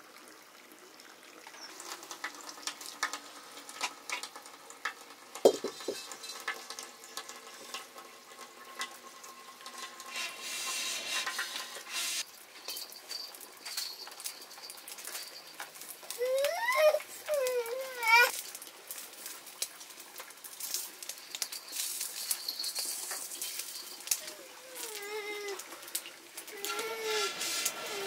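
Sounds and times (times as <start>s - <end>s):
food sizzling in a pan: 1.4s - 28.0s
utensil scraping a pan: 5.5s - 8.0s, 8.8s - 12.3s, 26.6s - 28.0s.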